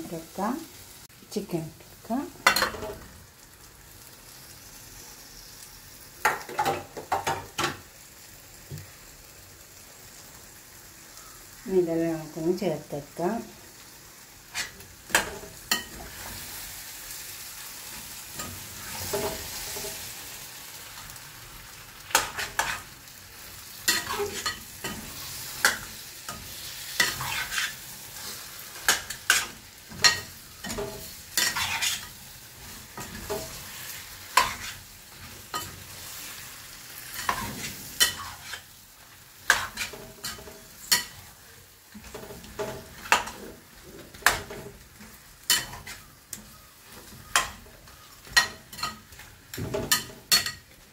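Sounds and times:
food sizzling in a pan: 0.0 - 50.9
metal spoon scraping a pan: 14.5 - 16.9, 17.8 - 20.4, 22.1 - 22.9, 23.8 - 38.8, 39.4 - 41.4, 42.0 - 50.7.

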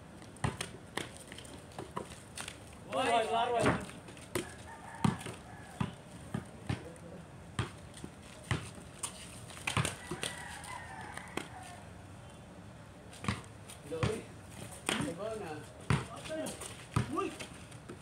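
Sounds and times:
basketball bouncing on concrete: 0.4 - 2.1, 3.5 - 8.8, 9.6 - 10.3, 13.2 - 18.0
rooster crowing faintly: 4.4 - 6.0, 9.8 - 12.0.

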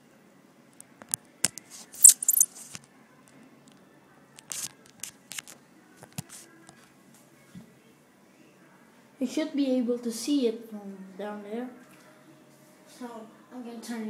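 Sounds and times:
rustling scrapes against microphone: 1.5 - 2.9, 4.4 - 6.9.

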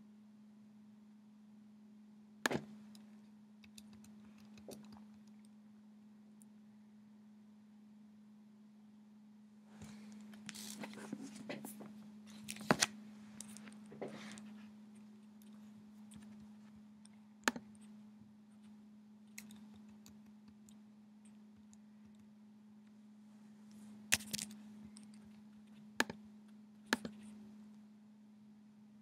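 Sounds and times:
computer mouse clicks: 2.5 - 5.5, 15.4 - 18.0, 19.3 - 22.3, 26.9 - 27.4.

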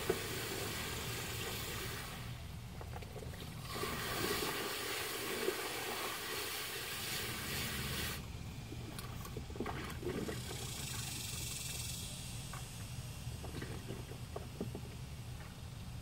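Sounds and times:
hose nozzle spraying water: 3.6 - 8.3.

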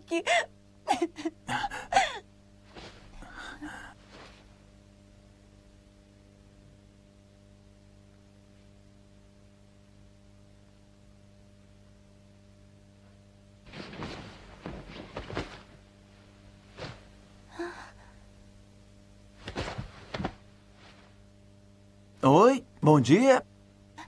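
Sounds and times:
faint electrical hum: 0.0 - 24.0
person gasping and sighing: 1.5 - 2.3, 3.1 - 4.0, 17.5 - 18.3.

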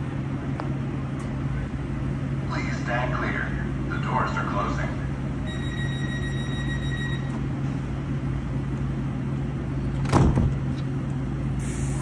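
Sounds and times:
train equipment humming: 0.0 - 12.0
high door-warning tone: 5.4 - 7.5
sliding doors closing thump: 9.9 - 10.8
short hiss: 11.6 - 12.0.

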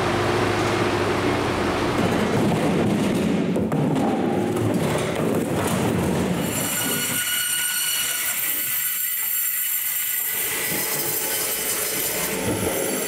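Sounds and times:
mechanical din with knocks: 2.0 - 7.2
band saw whining: 6.4 - 13.0.

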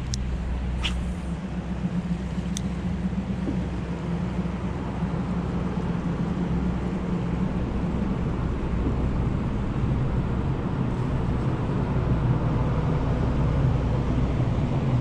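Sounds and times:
river flowing: 0.0 - 7.8.

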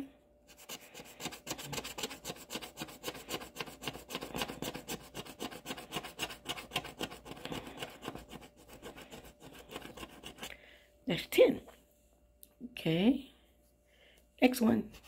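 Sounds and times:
coin scraping scratch card: 0.5 - 10.5.

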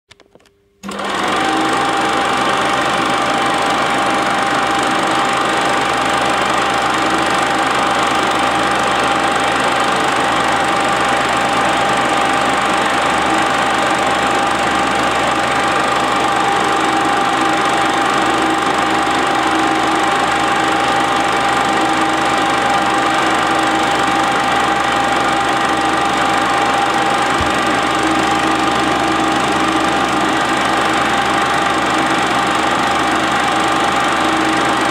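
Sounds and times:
film projector whirring and clattering: 0.8 - 34.9
high motor whine: 25.9 - 32.3.

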